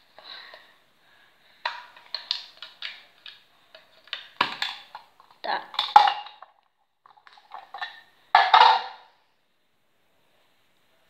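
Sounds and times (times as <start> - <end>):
plastic box clicks and knocks: 4.1 - 5.1.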